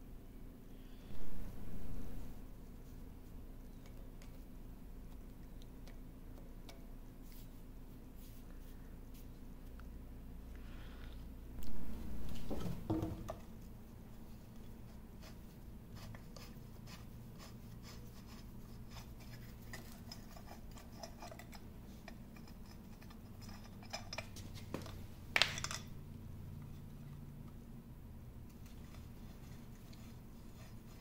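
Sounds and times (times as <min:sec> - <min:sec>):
steady low hum: 0:00.0 - 0:31.0
metal ticks and scrapes: 0:18.9 - 0:24.6.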